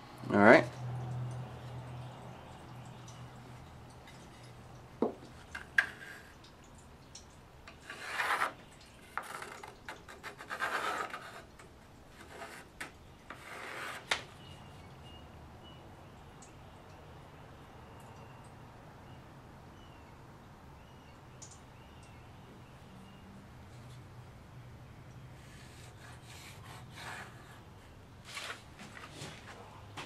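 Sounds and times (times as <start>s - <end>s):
wood-on-wood knocks: 5.0s - 5.3s
pencil scratching on plywood: 7.8s - 11.5s, 12.2s - 14.2s, 25.4s - 27.7s.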